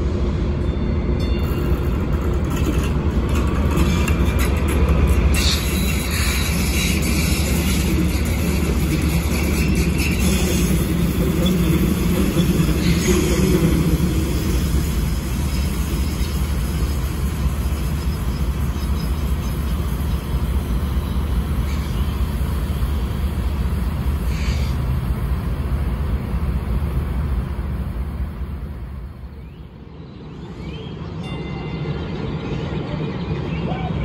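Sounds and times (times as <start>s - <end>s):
street sound: 0.0s - 34.0s
train rumbling on tracks: 0.0s - 34.0s.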